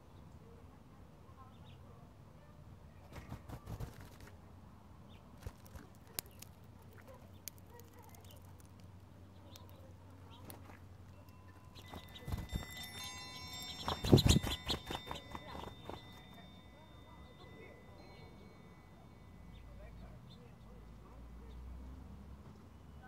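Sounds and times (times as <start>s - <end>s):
bird pecking at seed: 5.4s - 13.0s, 13.7s - 16.4s
low steady hum: 6.5s - 23.0s.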